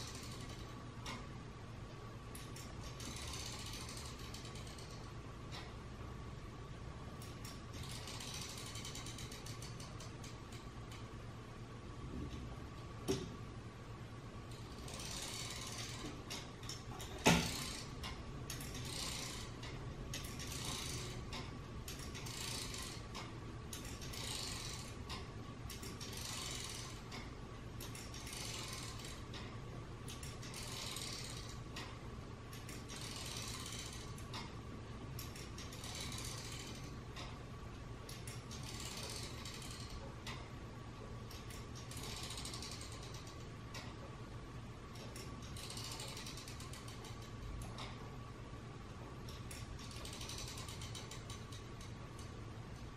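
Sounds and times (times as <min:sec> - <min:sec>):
ratchet-like gear clicking: 0:00.0 - 0:01.3, 0:02.3 - 0:05.7, 0:07.2 - 0:11.1, 0:14.5 - 0:34.6, 0:35.2 - 0:37.4, 0:38.1 - 0:40.4, 0:41.3 - 0:44.0, 0:45.0 - 0:48.0, 0:49.3 - 0:52.4
steady low hum: 0:00.0 - 0:52.9.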